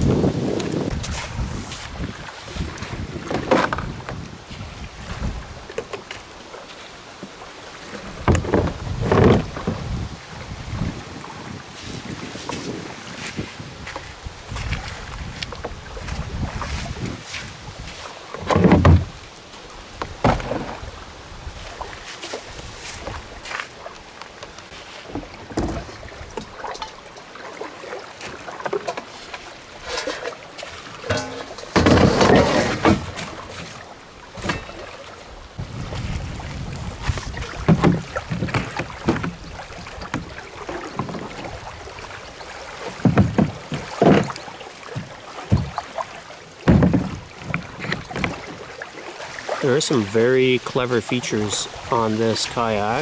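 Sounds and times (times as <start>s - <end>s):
wind buffeting microphone: 0.0s - 5.7s, 8.1s - 18.0s, 35.4s - 42.2s
scraping and knocking on plastic: 8.3s - 9.8s, 18.4s - 19.1s, 31.1s - 33.3s, 46.7s - 48.4s
case knocking and rustling: 31.0s - 33.3s.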